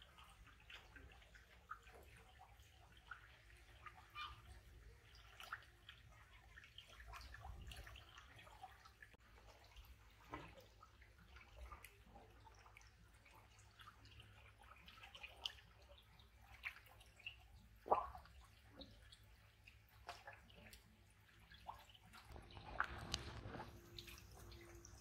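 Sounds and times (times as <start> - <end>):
water dripping and trickling: 0.0 - 25.0
low steady hum: 22.1 - 25.0.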